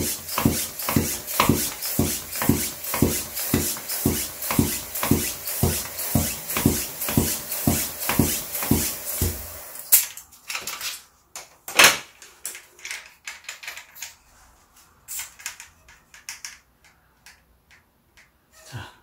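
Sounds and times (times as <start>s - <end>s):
floor pump strokes hissing: 0.0s - 9.9s.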